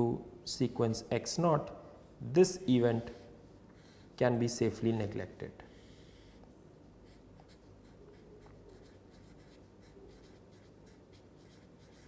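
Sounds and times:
marker scratching on paper: 0:07.0 - 0:12.0.

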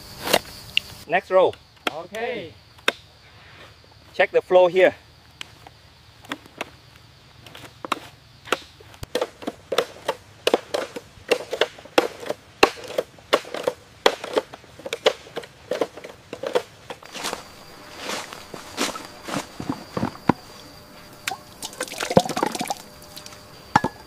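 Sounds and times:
sharp crunching knocks: 0:07.4 - 0:24.0.

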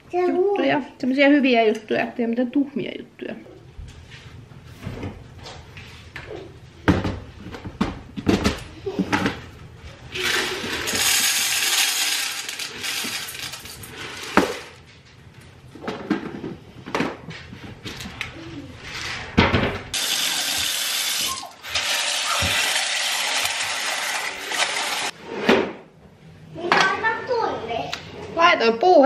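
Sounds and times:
dry pasta rattling into container: 0:10.2 - 0:14.0, 0:20.7 - 0:25.1
tap water running into pot: 0:20.0 - 0:25.1.

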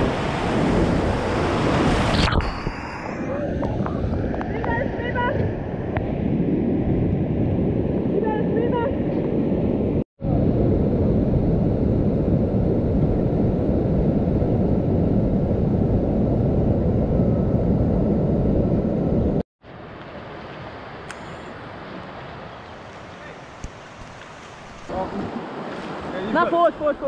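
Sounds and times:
calm river flowing: 0:19.6 - 0:27.0.

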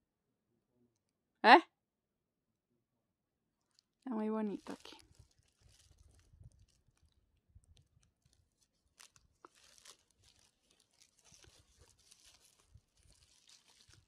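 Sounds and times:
faint rustles and clicks: 0:03.7 - 0:14.0.

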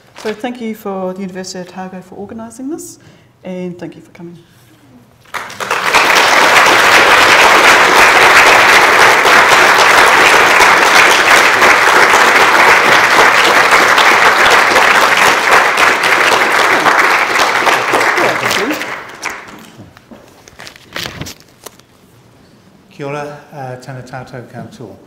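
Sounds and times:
audience applauding: 0:05.3 - 0:19.7.

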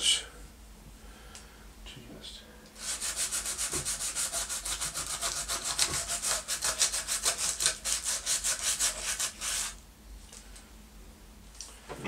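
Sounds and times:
sandpaper scratching on wood: 0:02.8 - 0:09.8.

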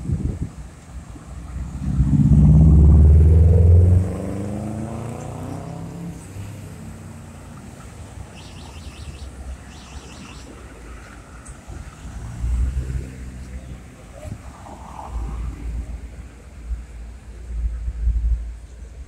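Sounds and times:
street background: 0:00.0 - 0:19.0
vehicle accelerating past: 0:01.4 - 0:07.6.

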